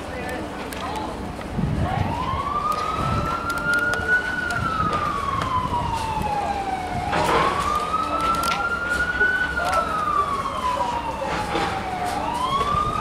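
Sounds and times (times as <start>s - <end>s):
siren wailing: 1.8s - 13.0s.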